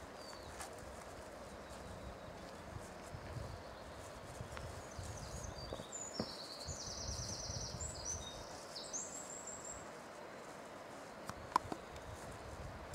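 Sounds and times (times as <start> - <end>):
songbird trilling: 3.5 - 9.9.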